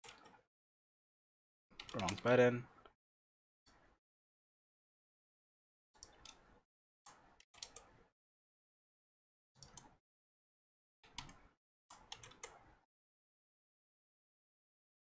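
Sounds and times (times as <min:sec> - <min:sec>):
keyboard and mouse clicks: 0:00.0 - 0:00.4, 0:01.7 - 0:02.9, 0:06.0 - 0:08.1, 0:09.6 - 0:10.0, 0:11.0 - 0:12.8.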